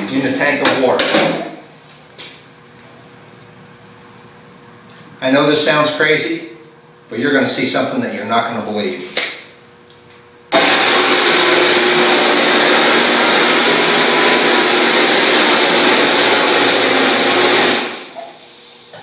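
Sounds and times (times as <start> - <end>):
circular saw running underwater: 10.6 - 18.1
saw blade churning water: 10.6 - 18.2.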